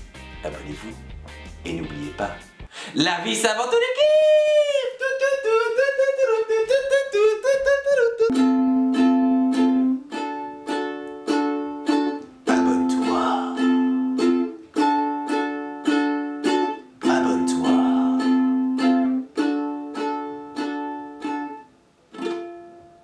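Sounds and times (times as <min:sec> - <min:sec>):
ukulele strumming: 0:04.0 - 0:23.0.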